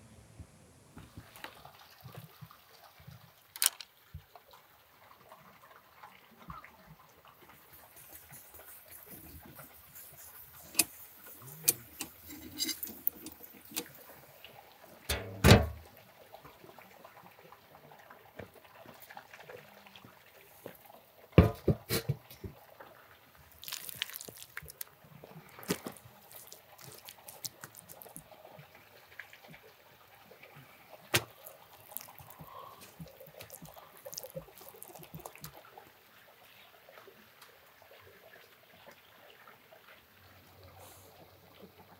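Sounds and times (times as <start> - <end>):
small clicks: 3.6 - 3.9
dull thump: 15.1 - 15.8, 21.4 - 21.8
metal lid and brick knocks: 15.1 - 15.8, 21.4 - 21.9
sharp metallic clank: 15.1 - 15.8.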